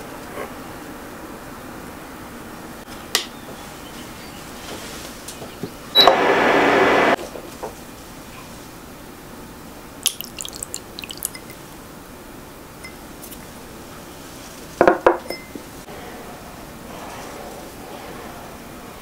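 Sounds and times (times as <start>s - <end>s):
liquid dripping: 10.0s - 11.7s
glass bowl clinking on pan: 10.1s - 11.6s.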